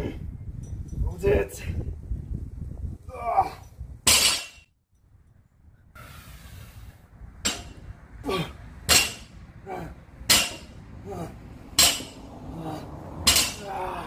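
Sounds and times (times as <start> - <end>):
person grunting: 3.1 - 3.6, 8.2 - 8.6, 9.6 - 10.0, 11.0 - 11.5, 12.4 - 14.0
barbell plates hitting concrete floor: 4.1 - 4.6, 7.4 - 7.8, 8.9 - 9.3, 10.2 - 10.8, 11.8 - 12.2, 13.3 - 13.8.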